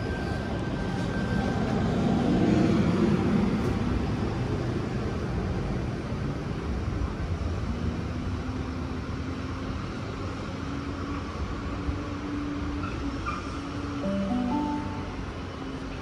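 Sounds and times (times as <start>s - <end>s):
electric train pulling away: 14.0s - 15.8s.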